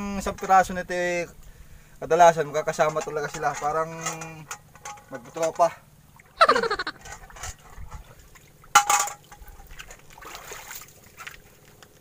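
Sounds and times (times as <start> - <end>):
seawater splashing and trickling: 5.1 - 6.4, 7.0 - 12.0.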